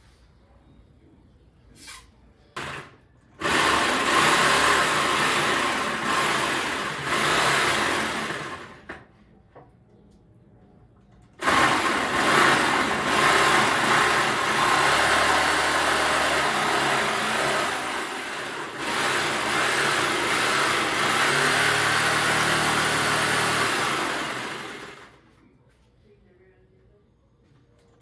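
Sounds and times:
electric jigsaw cutting wood: 0:02.6 - 0:09.0, 0:11.4 - 0:25.2.

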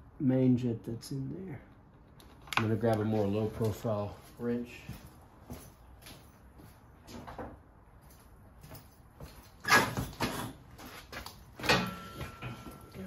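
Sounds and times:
sharp metallic clanks: 0:11.6 - 0:13.0.

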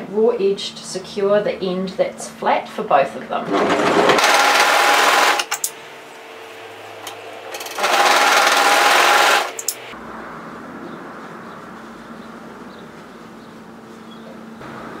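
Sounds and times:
overlocker serging fabric: 0:03.5 - 0:05.5, 0:06.5 - 0:09.8.

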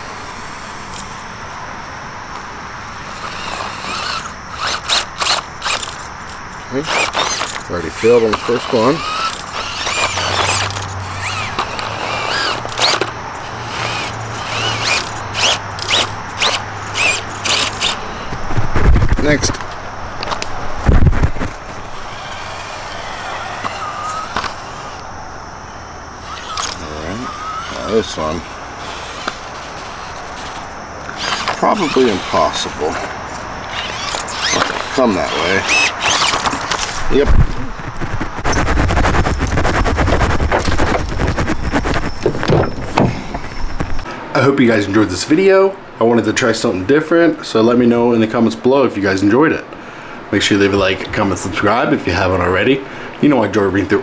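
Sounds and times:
sharp scraping clicks: 0:00.0 - 0:01.2, 0:02.3 - 0:25.1, 0:26.2 - 0:44.1
electric motor whining: 0:00.0 - 0:44.1
sharp clicks: 0:26.3 - 0:26.9.

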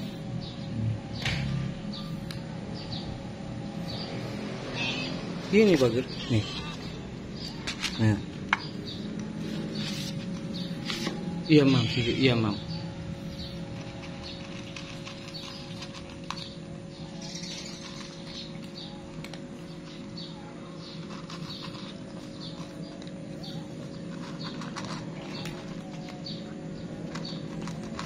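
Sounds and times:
cats crunching dry kibble: 0:13.4 - 0:28.0.

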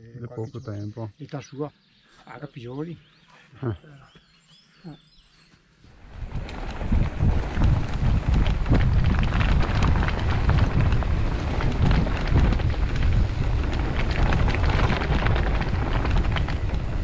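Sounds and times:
bike rattling: 0:06.0 - 0:17.0
wind rumbling on microphone: 0:06.0 - 0:17.0
tyres rolling over loose stones: 0:06.1 - 0:17.0.

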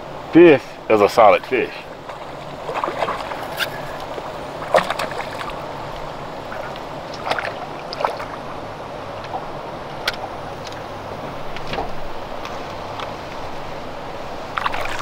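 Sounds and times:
steady low hum: 0:00.0 - 0:15.0
water lapping against boat hull: 0:01.7 - 0:15.0
water slaps and splashes: 0:01.8 - 0:08.5, 0:14.5 - 0:15.0.

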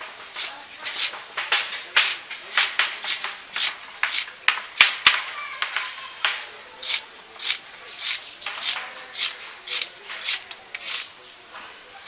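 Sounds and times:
crisp cutting strokes: 0:00.1 - 0:05.0, 0:06.8 - 0:11.2.

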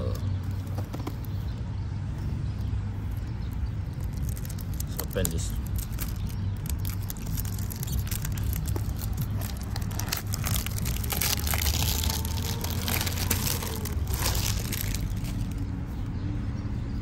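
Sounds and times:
cellophane wrap crinkling: 0:03.9 - 0:15.7.

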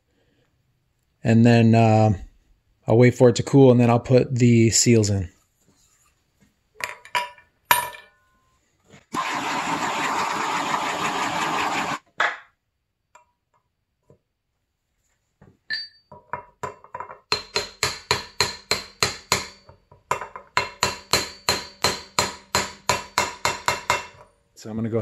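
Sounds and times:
blowtorch hissing: 0:09.1 - 0:12.0
hammer tapping metal: 0:15.7 - 0:24.3.

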